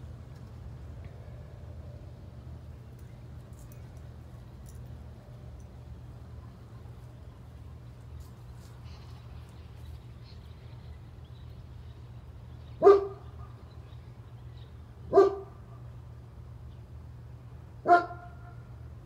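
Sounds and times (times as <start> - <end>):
low steady hum: 0.0 - 19.0
dog barking: 12.8 - 13.2, 15.1 - 15.6, 17.8 - 18.5.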